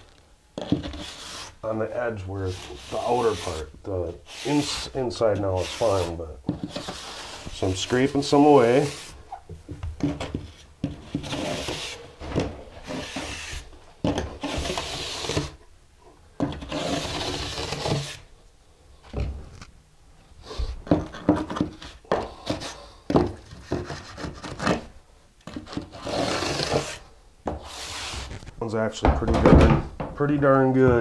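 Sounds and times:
trowel scraping mortar: 0.6 - 1.6, 2.4 - 7.8, 11.0 - 12.0, 12.8 - 13.6, 14.4 - 15.6, 16.5 - 18.3, 25.5 - 27.0.

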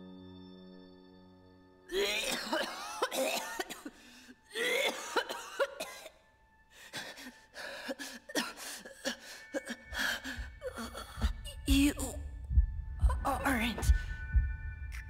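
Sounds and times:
elderly woman coughing: 1.9 - 6.2, 7.9 - 9.9.

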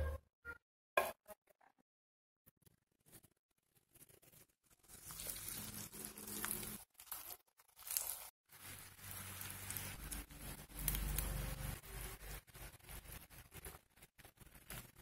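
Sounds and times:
potatoes sizzling in oil: 4.8 - 15.0.

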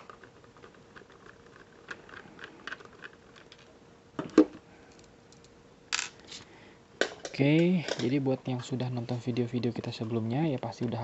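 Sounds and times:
plastic parts clicking and rattling: 0.0 - 3.7.

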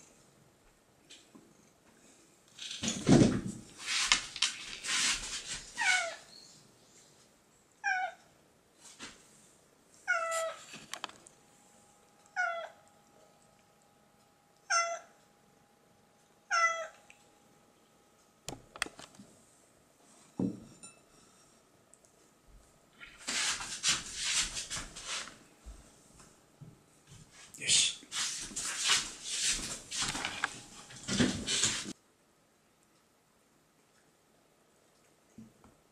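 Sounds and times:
cat meowing: 5.8 - 6.3, 7.8 - 8.2, 10.0 - 10.6, 12.4 - 12.8, 14.6 - 15.2, 16.5 - 17.0
rustling and clatter: 28.4 - 32.0.

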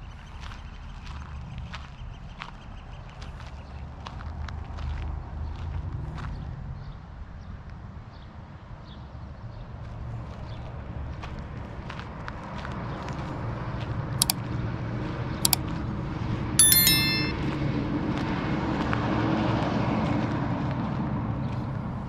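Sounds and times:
sharp clicks: 16.6 - 17.4
high ringing sound: 16.6 - 17.6.

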